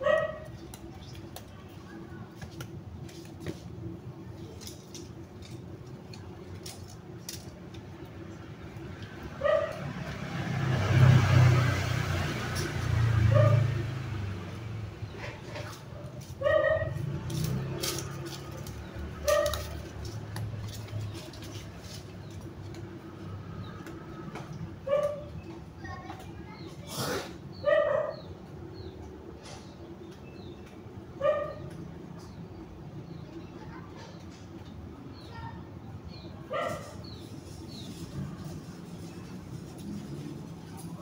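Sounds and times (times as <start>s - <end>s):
twigs cracking and clicking: 4.4s - 8.2s, 17.2s - 23.0s
cut branches rustling: 15.2s - 23.0s.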